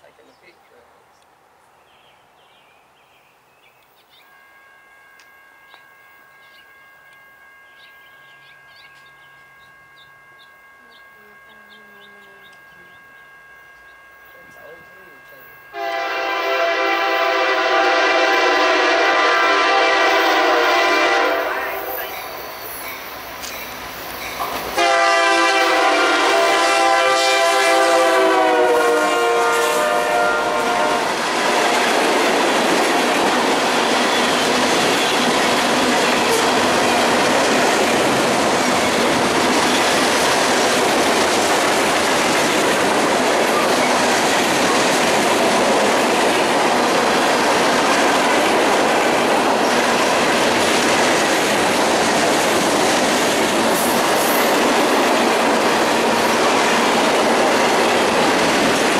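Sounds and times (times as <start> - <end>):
train wheels on rail: 5.1 - 58.9
locomotive air horn: 15.2 - 22.0, 24.8 - 31.9, 36.2 - 36.7.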